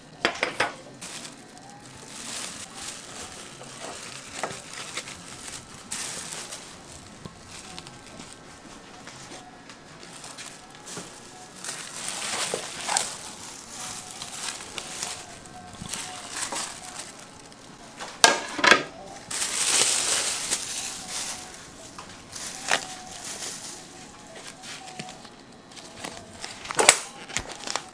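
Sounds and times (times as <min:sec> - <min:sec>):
plastic wrap crinkling: 0:00.0 - 0:27.9.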